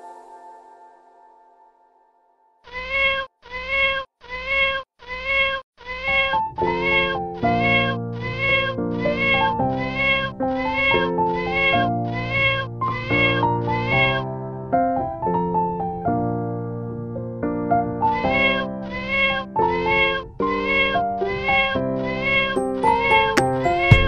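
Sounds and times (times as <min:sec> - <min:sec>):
keyboard chords: 0:00.0 - 0:02.3, 0:22.5 - 0:24.0
sampled cat meows in rhythm: 0:02.6 - 0:14.3, 0:18.1 - 0:24.0.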